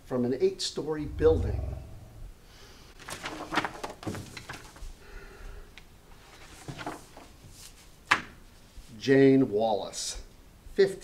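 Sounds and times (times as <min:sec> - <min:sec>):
paper folders rustling: 0:03.0 - 0:05.0, 0:06.2 - 0:07.9.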